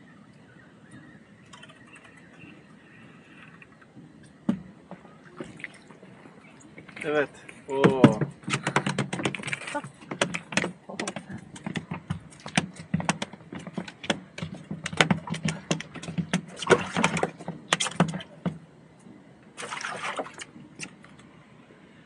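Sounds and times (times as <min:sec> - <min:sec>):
fishing tackle clicking and knocking: 0:07.8 - 0:18.6.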